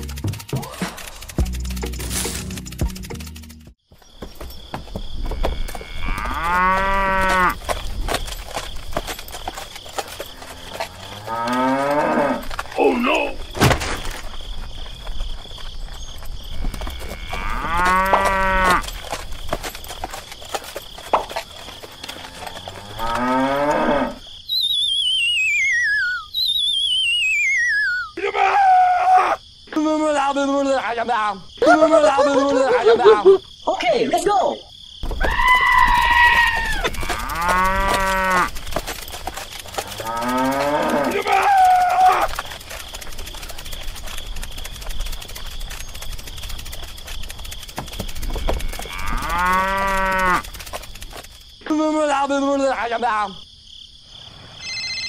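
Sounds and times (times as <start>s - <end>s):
cow mooing: 5.6s - 7.6s, 10.3s - 12.5s, 16.7s - 18.9s, 22.0s - 24.2s, 36.5s - 38.5s, 39.8s - 41.9s, 48.7s - 50.5s
cartoon descending whistle: 24.5s - 28.2s.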